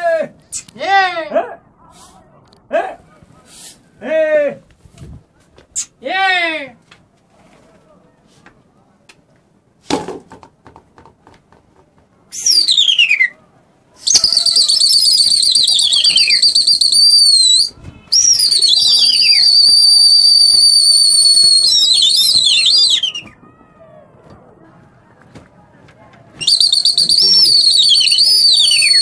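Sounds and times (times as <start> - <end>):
loud two-finger whistling: 14.1 - 23.3, 26.4 - 29.0.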